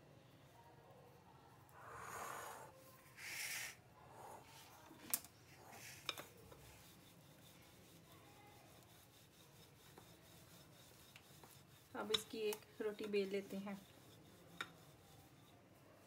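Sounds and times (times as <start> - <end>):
dough rustling and patting: 5.7 - 15.6.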